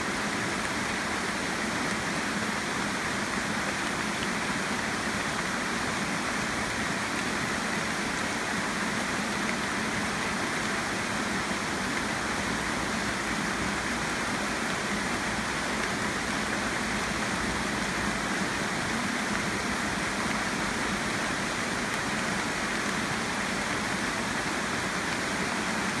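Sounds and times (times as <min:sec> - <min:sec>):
heavy rain on foliage: 0:00.0 - 0:26.0.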